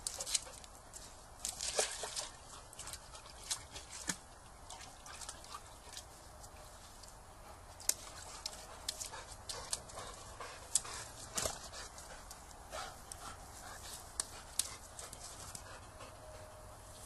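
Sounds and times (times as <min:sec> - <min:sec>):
dog splashing in water: 0:01.4 - 0:06.2.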